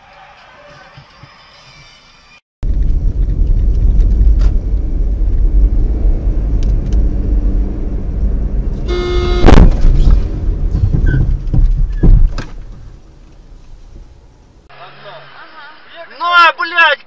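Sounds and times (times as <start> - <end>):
car road and engine rumble: 2.6 - 14.8
car horn: 8.8 - 9.8
loud bang: 8.9 - 11.1.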